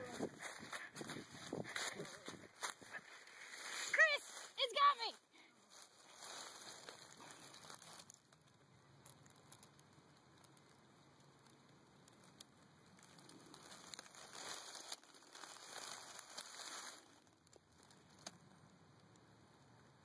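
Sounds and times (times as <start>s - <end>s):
dry leaves rustling: 0.0s - 18.4s
small ticks: 6.8s - 20.0s.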